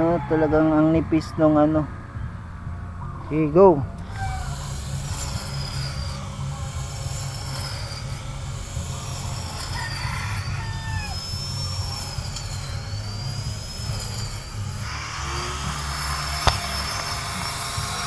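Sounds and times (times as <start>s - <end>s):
grass trimmer motor whine: 4.0s - 18.0s.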